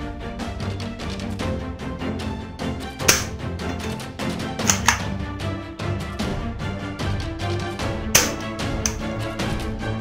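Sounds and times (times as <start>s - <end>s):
background music: 0.0s - 10.0s
plastic toy gun clacks: 3.0s - 4.0s, 4.6s - 5.1s, 8.2s - 9.0s.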